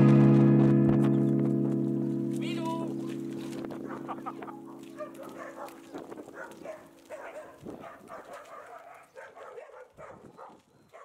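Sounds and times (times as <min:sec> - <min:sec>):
held music notes: 0:00.0 - 0:06.3.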